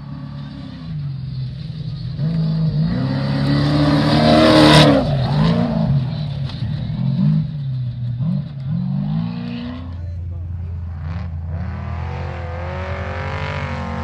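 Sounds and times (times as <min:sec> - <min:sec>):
race car engine passing at speed: 0:02.2 - 0:07.6, 0:10.8 - 0:14.0.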